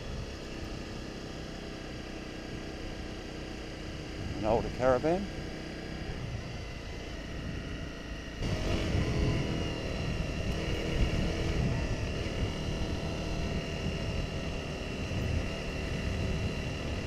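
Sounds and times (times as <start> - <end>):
motorcycle engine running: 0.0 - 17.0
wind rush: 8.4 - 12.6.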